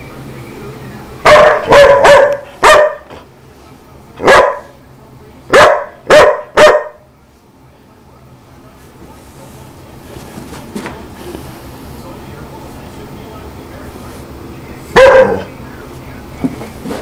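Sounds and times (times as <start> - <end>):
small dog barking: 1.2 - 3.1, 4.2 - 4.8, 5.5 - 7.0, 14.9 - 15.5.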